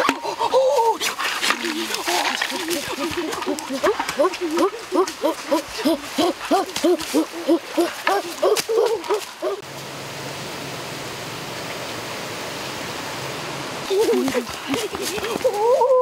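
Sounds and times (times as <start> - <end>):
boy making hooting calls: 3.4 - 9.6, 15.3 - 16.0.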